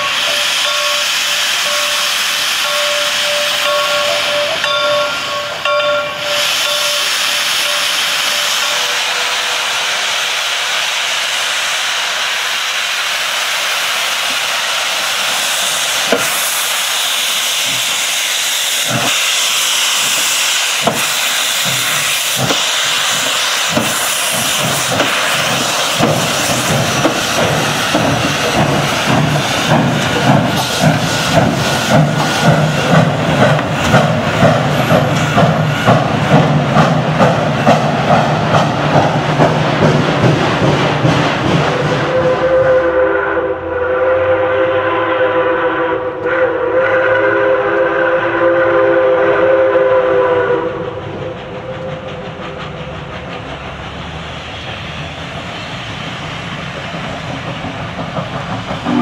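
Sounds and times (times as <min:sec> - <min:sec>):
steam venting hiss: 0:00.0 - 0:59.0
locomotive exhaust chuffs: 0:14.2 - 0:59.0
steam whistle: 0:41.9 - 0:52.0.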